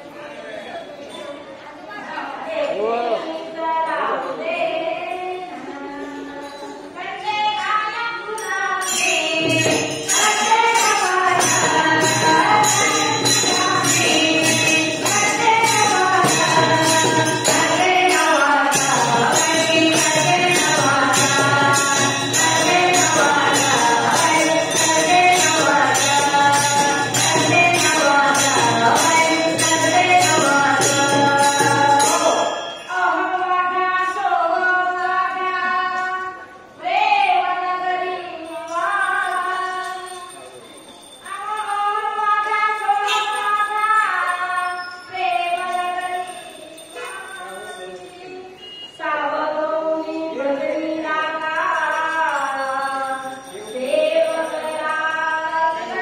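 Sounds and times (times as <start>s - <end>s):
hand drum and jingles beat: 6.4s - 34.2s
folk singing: 8.4s - 36.2s.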